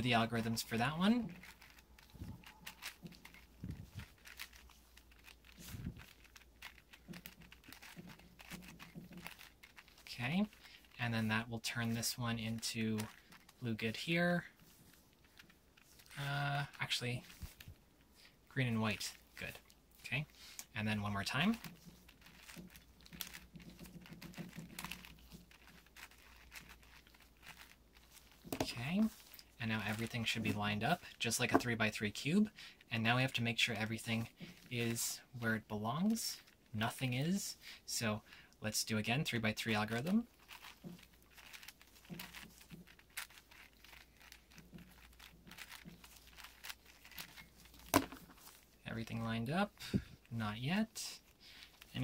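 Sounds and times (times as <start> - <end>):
puzzle cube plastic clicks: 0.2 - 11.0, 12.0 - 13.6, 21.4 - 31.7, 39.8 - 48.8
puzzle cube layers clicking: 0.4 - 10.6.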